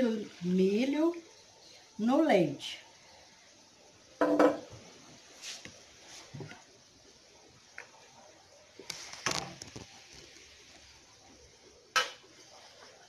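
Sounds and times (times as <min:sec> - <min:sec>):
spoon knocking on steel pot: 0:04.2 - 0:04.6.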